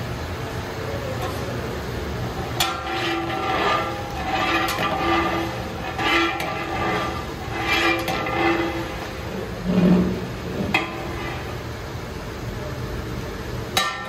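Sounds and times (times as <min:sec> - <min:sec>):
ladle scraping metal pot: 0:02.5 - 0:11.7.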